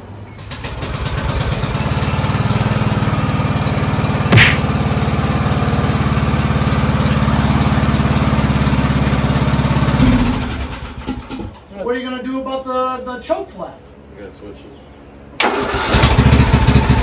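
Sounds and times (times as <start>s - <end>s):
riding mower engine running: 0.6s - 11.4s
brief sharp sound: 4.3s - 4.8s.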